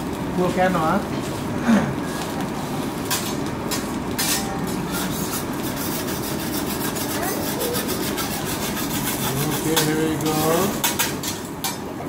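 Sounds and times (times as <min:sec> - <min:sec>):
steady background noise: 0:00.0 - 0:12.0
metal spatula scraping griddle: 0:02.0 - 0:11.9
spatula chopping on griddle: 0:03.0 - 0:11.9.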